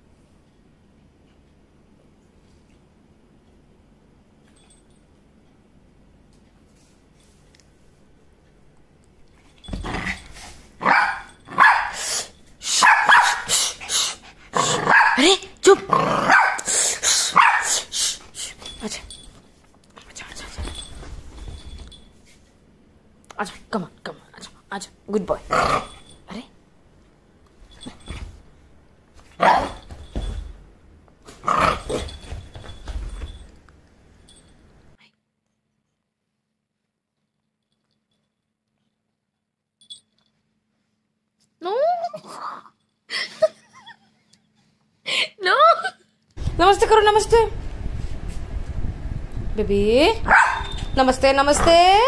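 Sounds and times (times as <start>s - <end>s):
small dog barking: 10.8s - 12.0s, 12.7s - 13.5s, 14.6s - 15.4s, 16.2s - 16.7s, 17.3s - 17.9s, 29.4s - 29.8s, 50.2s - 50.9s.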